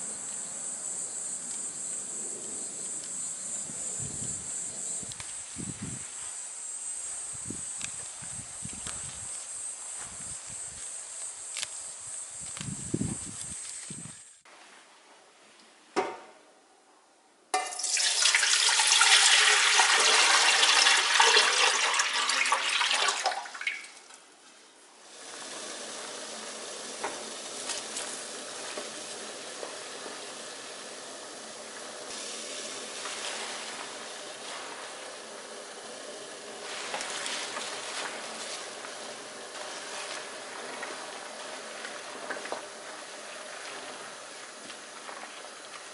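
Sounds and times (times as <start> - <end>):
knock: 16.0 - 16.4
water boiling in a pot: 17.5 - 24.3, 25.0 - 45.9
water pouring into a pot: 17.6 - 24.2, 25.0 - 45.9.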